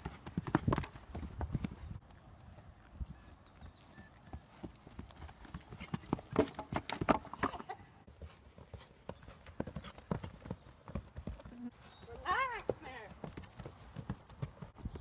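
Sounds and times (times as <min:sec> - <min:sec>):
horse hoofbeats trotting on grass: 0:00.0 - 0:15.0.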